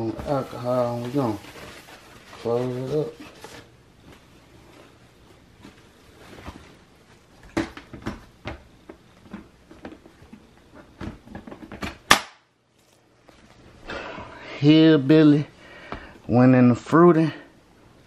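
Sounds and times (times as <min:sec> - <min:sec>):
paper towel rubbing plastic tub: 0:00.1 - 0:03.6.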